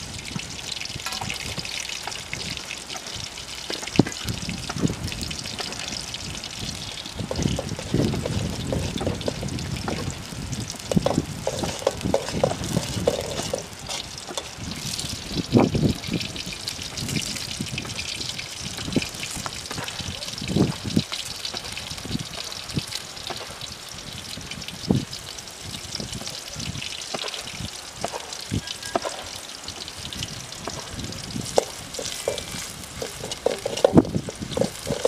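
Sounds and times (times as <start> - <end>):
onions sizzling in hot oil: 0.0 - 35.0
metal spoon scraping and knocking pan: 1.0 - 2.2, 7.0 - 10.2, 10.8 - 15.0, 28.0 - 29.4, 30.6 - 35.0.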